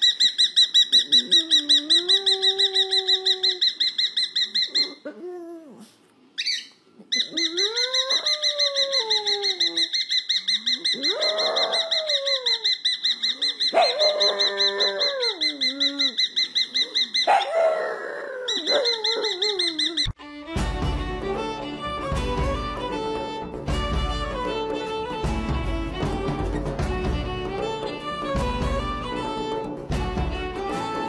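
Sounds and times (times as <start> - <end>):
cockatiel chirping: 0.0 - 5.0, 6.4 - 17.5
dog howling: 7.3 - 9.9, 11.0 - 12.6, 13.7 - 16.2, 17.3 - 20.0.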